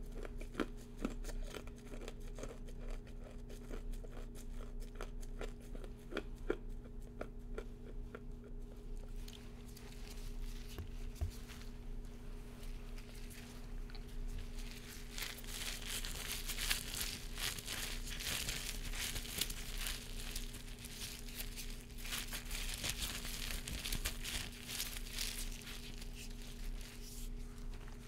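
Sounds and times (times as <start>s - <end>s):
disposable gloves crinkling: 9.0s - 28.0s.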